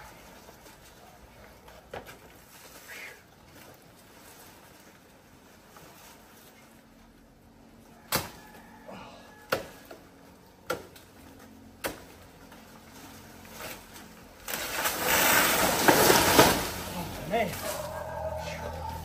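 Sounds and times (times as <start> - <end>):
blade chopping plant trunk: 9.5 - 10.0, 11.8 - 12.7, 13.5 - 17.0
plant falling with leaves crashing: 13.0 - 18.0.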